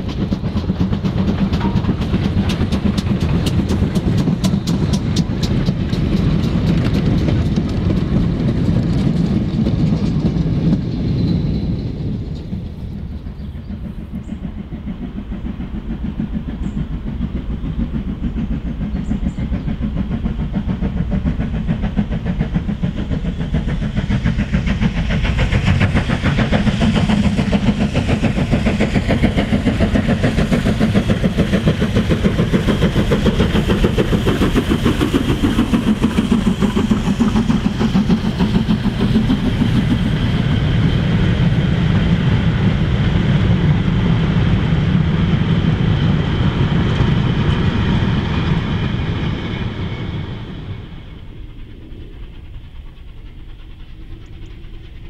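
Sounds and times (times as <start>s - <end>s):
steam locomotive exhaust beating: 0.0s - 55.0s
train clattering on rails: 0.0s - 55.0s.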